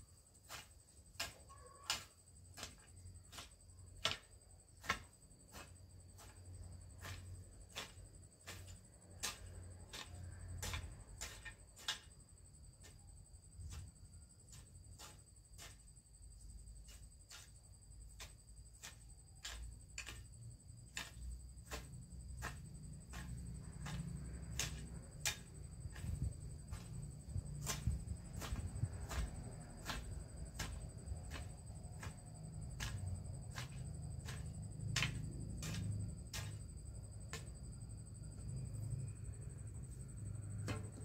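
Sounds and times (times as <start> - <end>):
hoe striking garden soil: 0.1 - 41.0.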